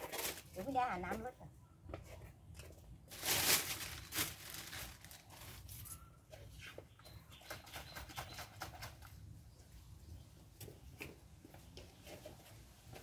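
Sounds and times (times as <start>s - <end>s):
plastic bag rustling: 0.0s - 0.8s, 3.0s - 6.0s.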